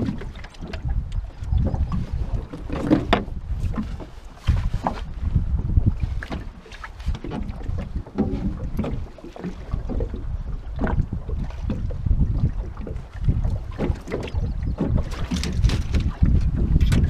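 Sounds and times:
wind buffeting microphone: 0:00.0 - 0:17.0
knocks in aluminum boat: 0:01.6 - 0:05.1, 0:11.6 - 0:17.0.

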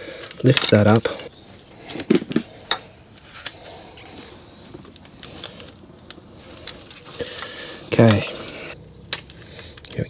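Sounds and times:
wiring rustling: 0:00.0 - 0:10.0
plastic connectors clicking: 0:04.8 - 0:08.2, 0:08.8 - 0:10.0.

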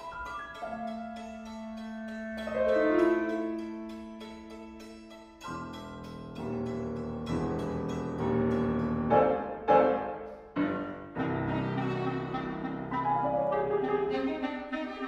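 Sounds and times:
piano clarinet and violin trio: 0:00.0 - 0:04.5, 0:09.1 - 0:15.0.

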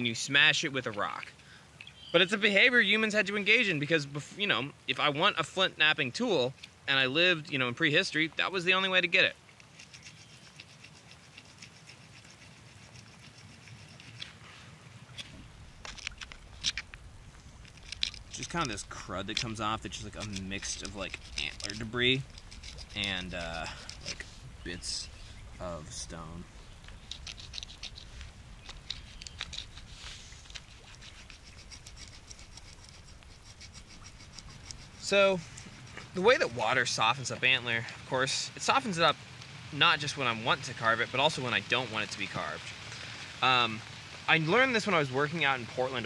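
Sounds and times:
stone blade scraping antler: 0:09.6 - 0:14.4, 0:17.6 - 0:24.4, 0:26.8 - 0:37.0.

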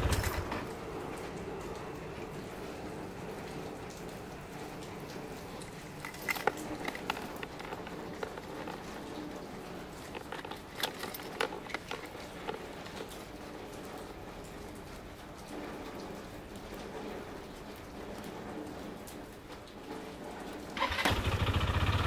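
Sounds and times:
scooter engine idling: 0:00.0 - 0:00.7, 0:20.8 - 0:22.0.

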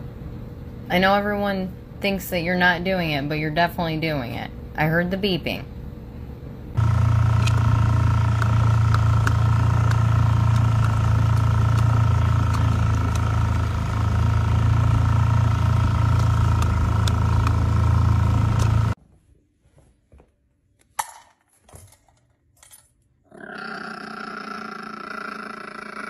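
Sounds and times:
vehicle engine droning with whine: 0:06.6 - 0:19.0.

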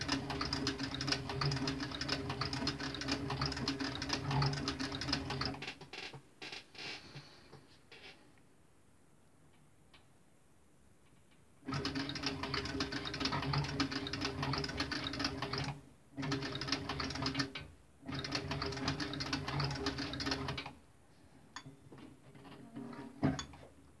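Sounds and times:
sewing machine stitching leather: 0:00.0 - 0:06.0, 0:11.6 - 0:20.7.

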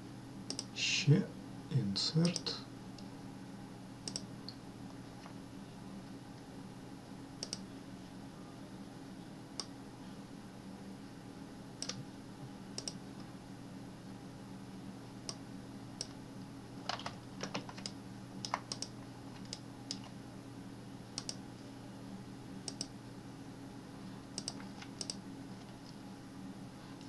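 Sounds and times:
steady low hum: 0:00.0 - 0:27.0
computer mouse clicks: 0:00.5 - 0:00.7, 0:04.0 - 0:04.3, 0:07.4 - 0:07.6, 0:11.8 - 0:12.0, 0:12.8 - 0:13.0, 0:16.9 - 0:20.1, 0:21.2 - 0:21.4, 0:22.6 - 0:22.9, 0:24.4 - 0:25.2
keyboard keys clicking: 0:16.9 - 0:20.1.

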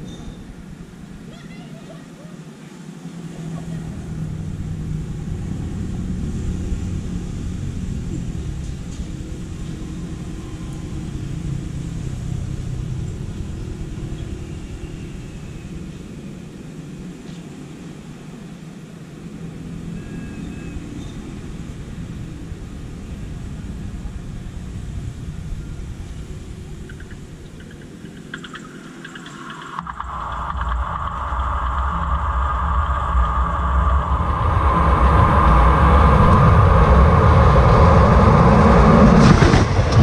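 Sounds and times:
faint high whistling tones: 0:00.0 - 0:01.0, 0:08.2 - 0:18.1, 0:19.8 - 0:38.1
low outdoor rumble: 0:00.0 - 0:40.0.

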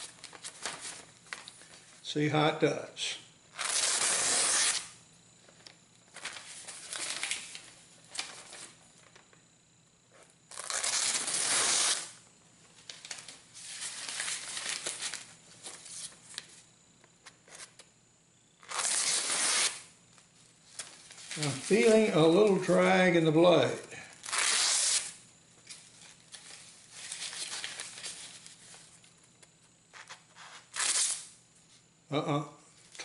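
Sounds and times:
paper rustling: 0:00.0 - 0:02.0, 0:05.5 - 0:09.2, 0:12.7 - 0:16.5, 0:20.7 - 0:22.6, 0:25.7 - 0:28.9.

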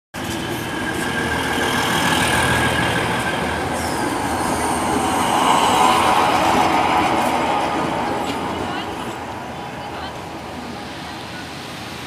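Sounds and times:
railbus rumbling past: 0:00.1 - 0:12.0.

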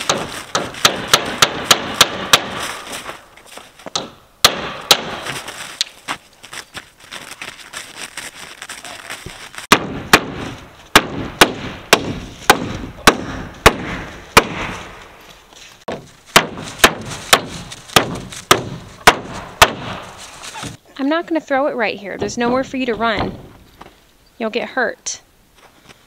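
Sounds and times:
hammer driving nails into wood: 0:00.0 - 0:02.6.

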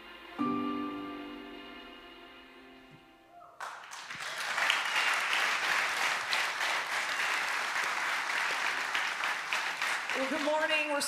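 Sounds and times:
large audience applauding: 0:03.5 - 0:11.0.

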